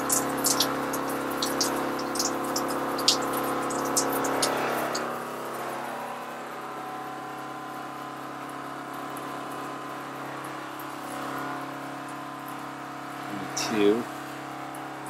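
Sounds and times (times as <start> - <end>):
shower water spraying: 0.0 - 5.2
water pump humming: 0.0 - 15.0.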